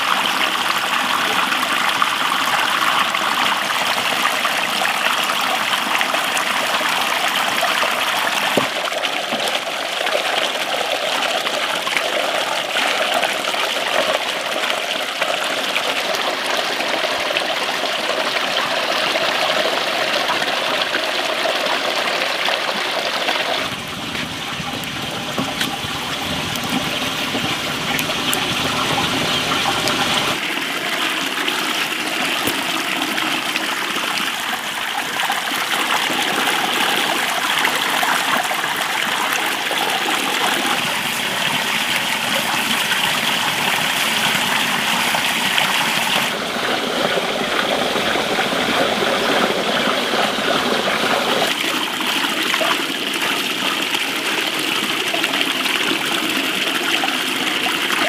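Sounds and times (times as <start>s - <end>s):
tap water splashing into basin: 7.1s - 9.7s, 23.2s - 46.4s.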